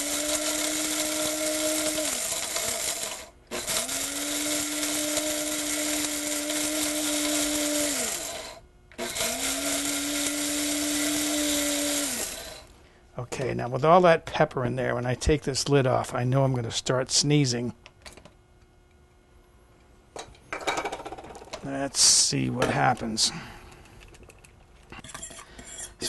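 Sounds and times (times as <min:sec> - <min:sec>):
electric spice grinder whining: 0:00.0 - 0:12.7.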